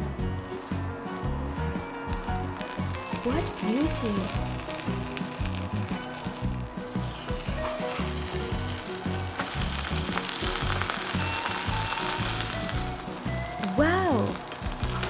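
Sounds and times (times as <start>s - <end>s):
background music: 0.0s - 15.0s
food sizzling in hot oil: 0.0s - 15.0s.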